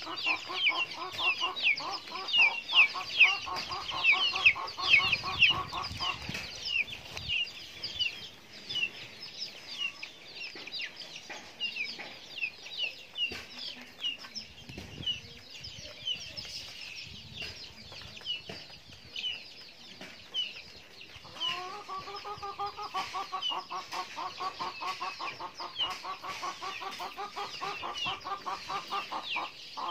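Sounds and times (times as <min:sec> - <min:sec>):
chicken clucking: 0:00.0 - 0:29.9
chicks peeping: 0:00.0 - 0:29.9.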